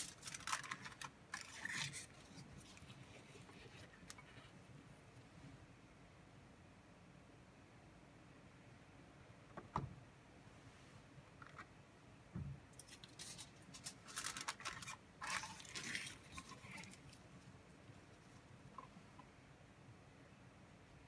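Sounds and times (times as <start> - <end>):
foil crinkling: 0.0 - 2.8, 12.8 - 17.2.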